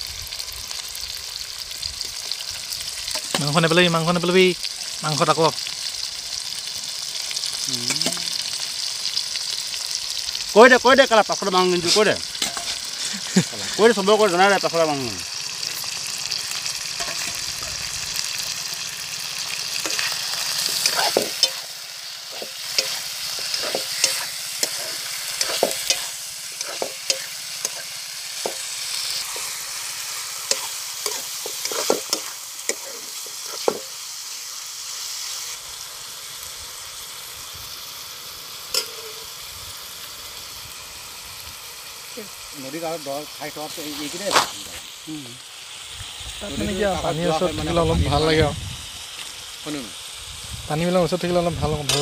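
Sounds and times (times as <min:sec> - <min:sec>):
meat sizzling in hot oil: 0:00.0 - 0:52.0
ladle knocking and scraping pan: 0:11.9 - 0:12.9, 0:17.0 - 0:17.8, 0:19.8 - 0:21.6, 0:22.3 - 0:28.7, 0:30.5 - 0:33.9.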